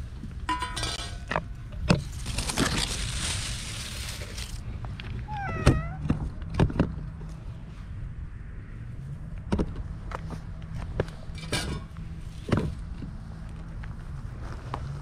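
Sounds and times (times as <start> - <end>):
rustling: 1.9 - 5.4
cat meowing: 5.2 - 6.1.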